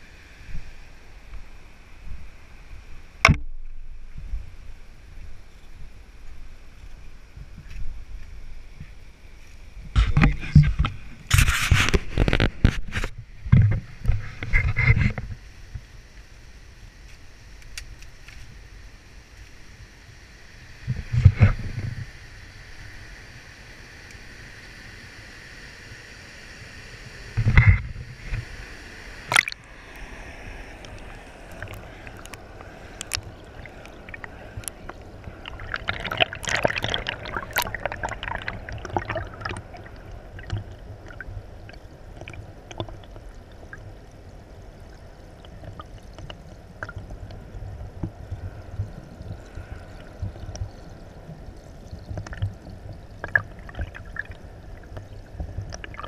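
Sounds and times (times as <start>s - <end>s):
muffled river water rushing: 0.0s - 56.0s
underwater crackling and bubbling: 9.8s - 15.9s, 27.2s - 56.0s.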